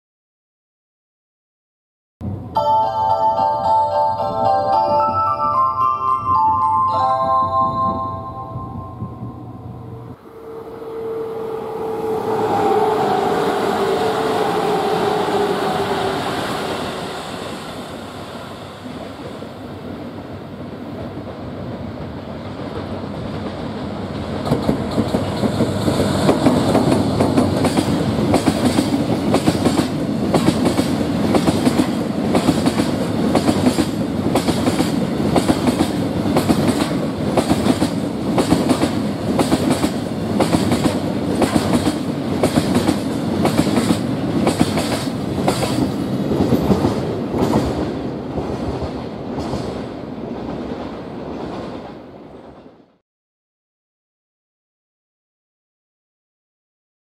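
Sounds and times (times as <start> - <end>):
diesel locomotive approaching: 2.2 - 53.0
train wheels clicking over rail joints: 21.2 - 49.9.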